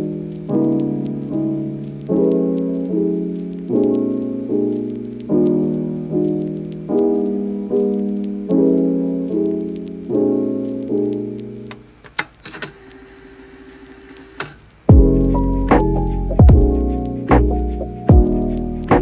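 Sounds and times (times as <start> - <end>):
soft piano chords: 0.0 - 12.0, 14.9 - 19.0.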